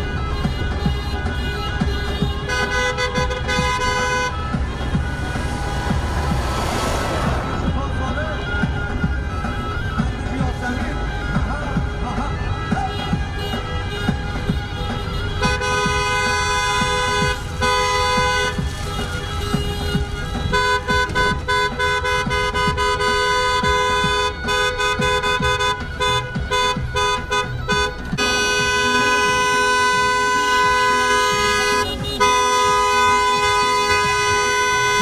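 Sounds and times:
car horns honking: 0.0s - 10.1s, 12.6s - 35.0s
low rumble of traffic: 0.0s - 24.0s.

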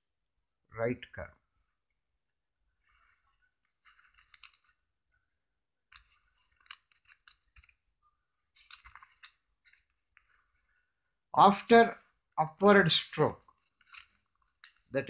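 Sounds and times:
faint clicking and scratching: 2.7s - 10.9s, 13.4s - 15.0s.

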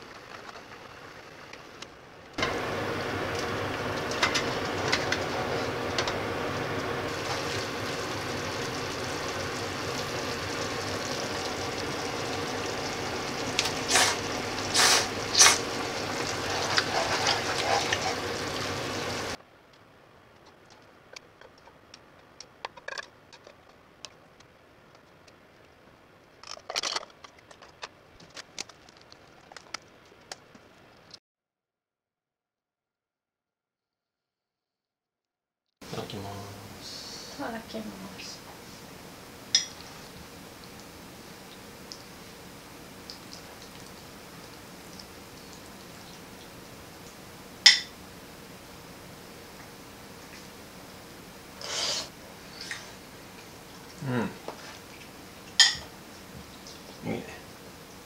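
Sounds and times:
pan simmering on stove: 0.0s - 19.4s, 35.8s - 58.0s
serving clinks into bowls: 55.6s - 55.9s.

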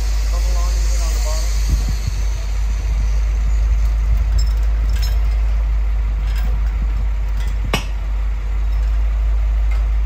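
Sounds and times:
low engine rumble: 0.0s - 10.0s
chain hoist metallic clinks: 3.8s - 7.9s, 8.6s - 9.1s.

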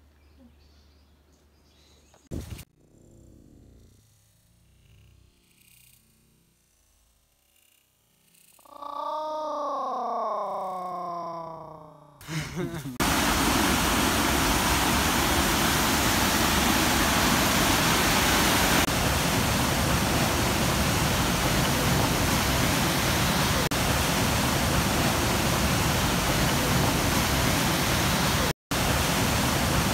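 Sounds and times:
waterfall rushing over rocks: 13.0s - 29.9s.

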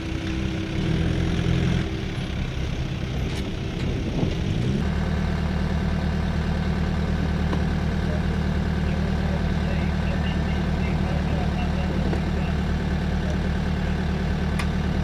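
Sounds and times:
vehicle engines running: 0.0s - 15.0s.

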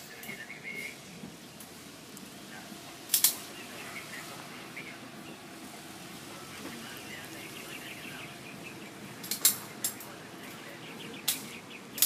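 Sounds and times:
faint bird chirping: 3.4s - 5.7s, 6.3s - 12.0s.

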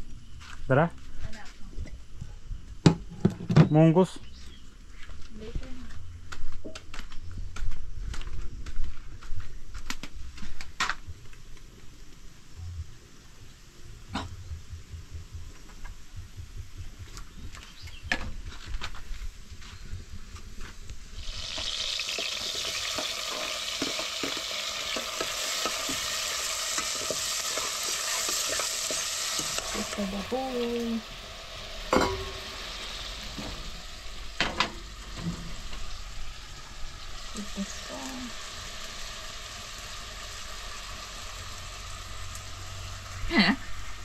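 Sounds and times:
vegetables sizzling in hot oil: 21.0s - 44.0s
metal clack on pot: 31.9s - 32.4s.

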